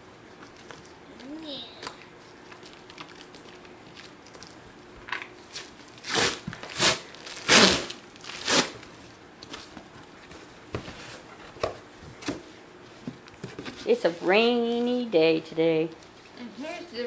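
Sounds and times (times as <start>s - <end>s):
packing tape ripping off cardboard: 5.5s - 8.9s.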